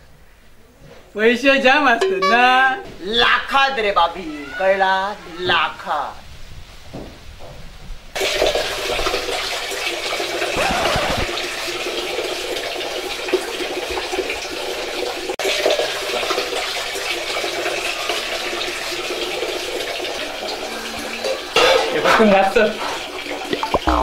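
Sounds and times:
tap water running: 8.2s - 24.0s.

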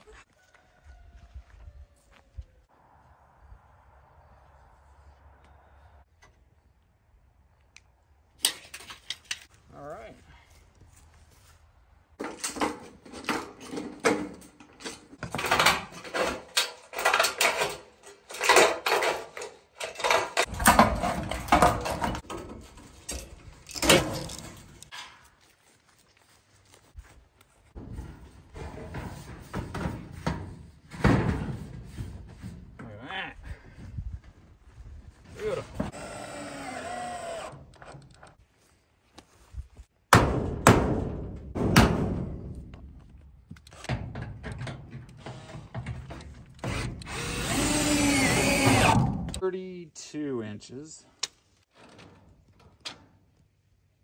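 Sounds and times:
metal sheet clattering: 12.2s - 25.2s
power drill motor whining: 35.8s - 37.9s, 46.6s - 49.1s.

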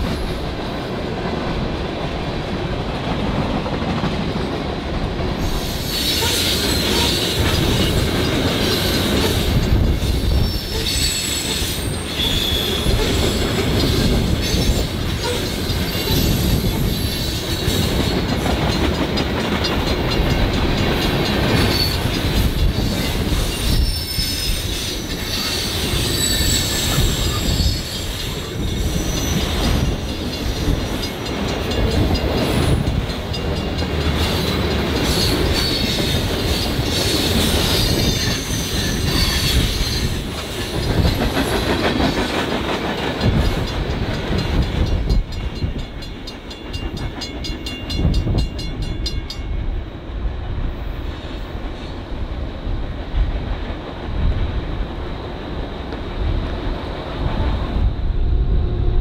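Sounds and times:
train wheels rumbling and clicking: 0.0s - 58.4s
high-pitched wheel squeal: 5.5s - 7.9s, 8.7s - 13.4s, 23.5s - 29.9s, 35.1s - 40.2s.

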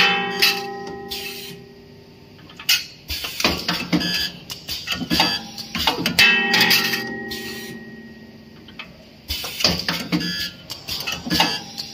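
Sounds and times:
welding machine metallic clanks: 0.0s - 1.6s, 2.5s - 11.9s
ringing tone: 0.0s - 1.9s, 5.4s - 8.9s.

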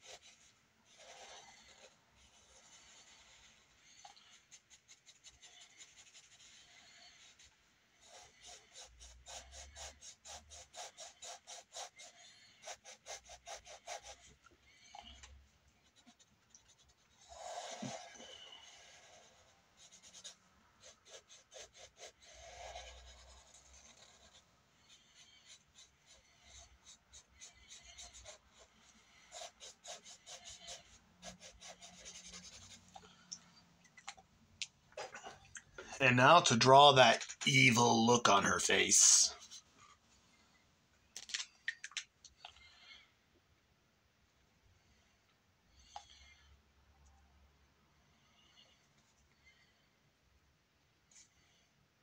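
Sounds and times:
drawing tool scratching on paper: 0.0s - 15.1s, 15.8s - 33.0s.

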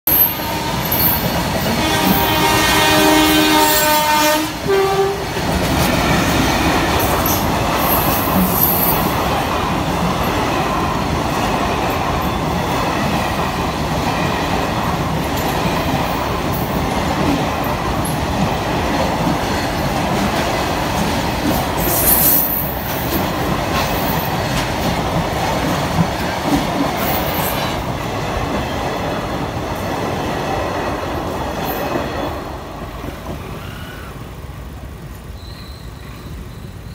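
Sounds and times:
train horn blowing: 0.1s - 5.4s
train squeals and rattles: 0.1s - 30.3s, 31.0s - 36.9s
train rumbling and clacking past: 0.1s - 36.9s.

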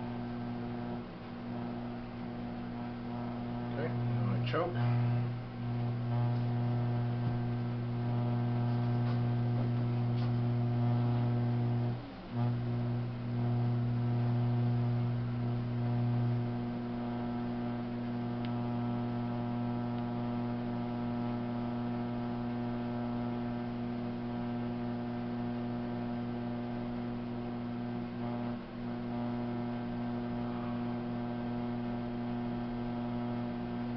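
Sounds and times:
potter's wheel motor humming: 0.0s - 33.9s.

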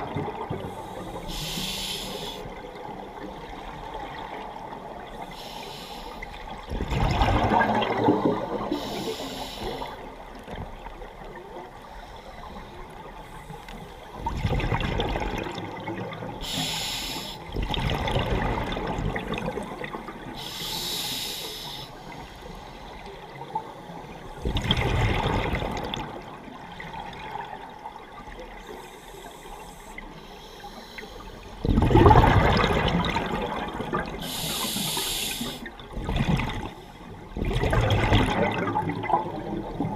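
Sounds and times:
underwater exhaled bubbles rushing: 0.0s - 1.3s, 6.4s - 11.7s, 14.1s - 16.4s, 17.5s - 20.4s, 23.4s - 28.4s, 31.5s - 39.9s
regulator high hisses: 1.2s - 2.5s, 16.4s - 17.4s, 34.2s - 35.7s.

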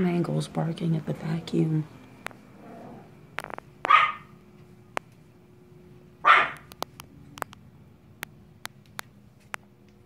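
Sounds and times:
puppy barking: 3.8s - 4.4s, 6.2s - 6.7s.

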